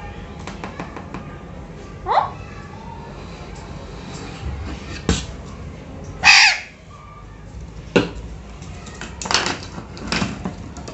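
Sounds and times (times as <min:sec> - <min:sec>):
parakeet squawk: 0:02.0 - 0:02.5, 0:06.2 - 0:06.8.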